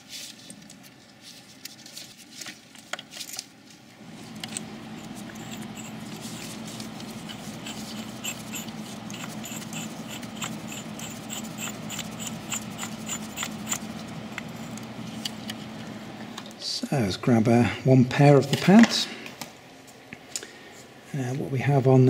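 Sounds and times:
steady low hum: 0:00.0 - 0:22.0
ratcheting wrench clicking: 0:07.2 - 0:14.5.

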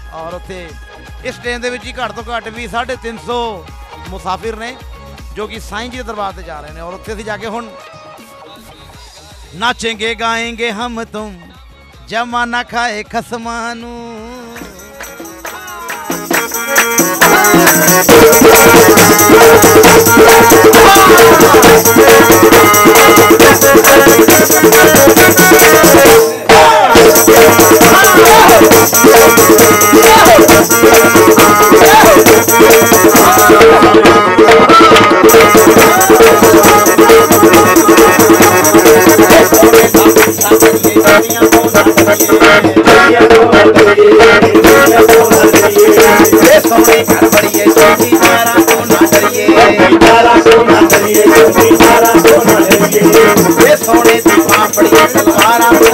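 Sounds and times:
upbeat devotional music: 0:00.0 - 0:55.9
rattling percussion: 0:14.5 - 0:55.9.

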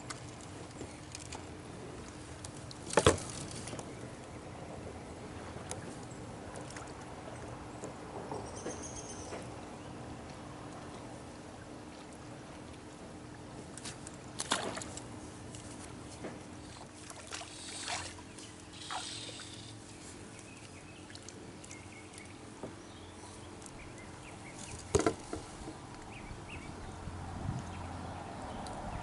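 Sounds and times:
faint steady hum: 0:00.0 - 0:29.0
taps and knocks of fishing gear: 0:24.7 - 0:25.8.

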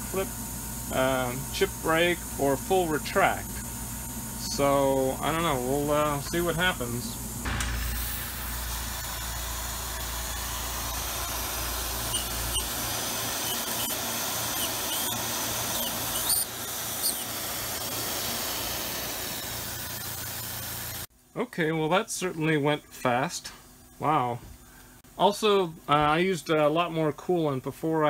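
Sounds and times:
hissing coolant spray: 0:04.5 - 0:21.1
cnc mill drilling into metal: 0:07.5 - 0:21.0
short high squeaks: 0:12.1 - 0:12.8, 0:13.4 - 0:17.3.

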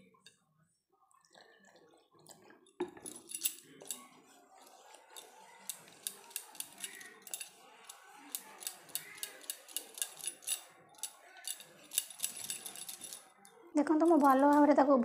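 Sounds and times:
wet batter stirring: 0:03.6 - 0:13.7
whisk clicking against metal bowl: 0:05.7 - 0:13.2.

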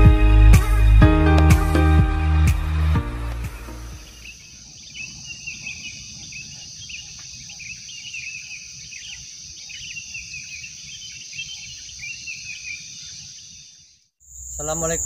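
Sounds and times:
high drone of insects: 0:03.3 - 0:15.0
bird chirps and calls: 0:03.6 - 0:15.0.

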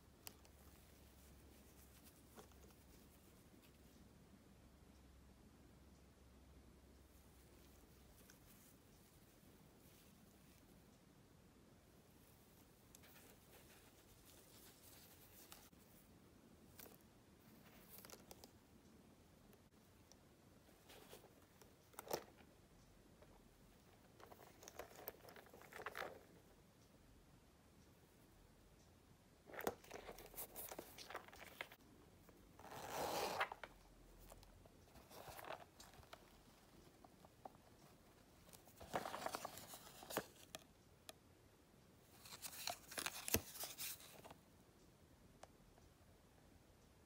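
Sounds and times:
gloved hands rustling leather and paper: 0:13.0 - 0:16.0, 0:38.5 - 0:40.5
leather pouch rustling: 0:32.6 - 0:33.7, 0:38.7 - 0:40.3.

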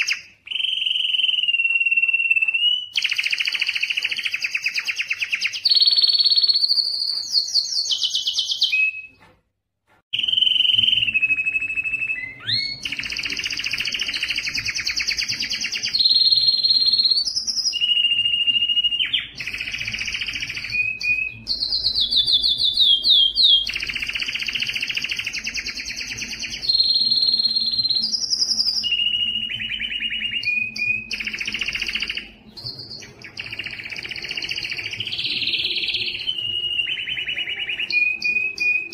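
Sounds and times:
canary singing fast trills: 0:00.0 - 0:09.2, 0:10.2 - 0:38.9.

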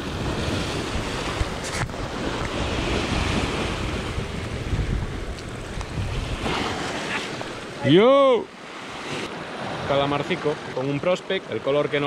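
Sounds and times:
wind buffeting microphone: 0:00.0 - 0:07.8
waves breaking over rocks: 0:00.0 - 0:12.0.

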